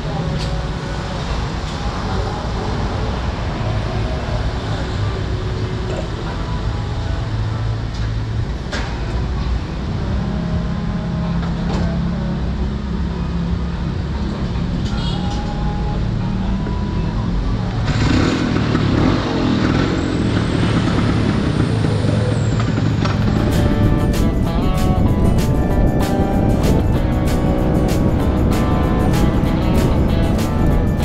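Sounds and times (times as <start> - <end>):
passing traffic: 0.0 - 31.0
wind and road noise: 0.0 - 31.0
scooter engine running: 17.9 - 31.0.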